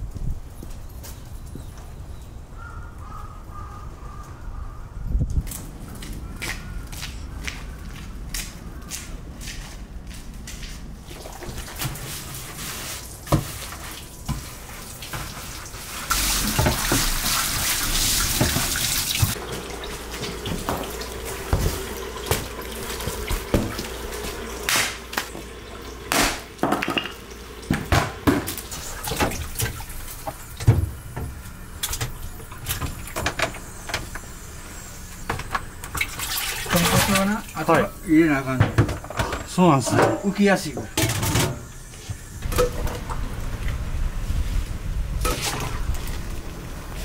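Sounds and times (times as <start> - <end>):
water running from tap: 12.4 - 34.6, 35.2 - 38.8.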